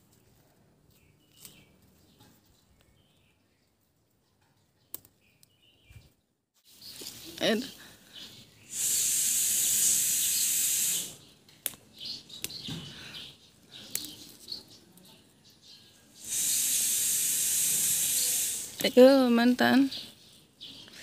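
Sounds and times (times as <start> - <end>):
leaves rustling: 6.6 - 15.1, 16.2 - 21.0
steady high hiss: 8.6 - 11.4, 16.1 - 19.7
plant stems snapping: 11.5 - 11.8, 13.8 - 14.5.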